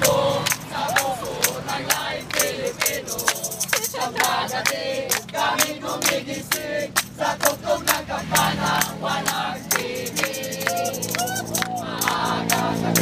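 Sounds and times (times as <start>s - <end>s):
group of people singing: 0.0s - 13.0s
hands clapping in time: 8.8s - 13.0s.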